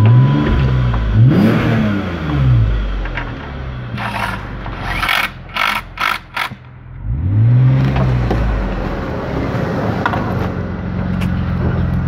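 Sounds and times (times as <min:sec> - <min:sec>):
engine throttle blip: 0:00.0 - 0:03.2
car engine idling: 0:00.0 - 0:12.0.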